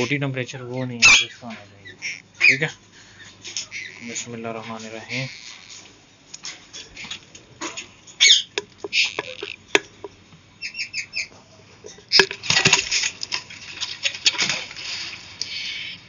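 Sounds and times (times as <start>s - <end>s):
bird chirps: 0.7s - 4.3s, 5.0s - 5.8s, 8.2s - 9.6s, 10.6s - 11.3s.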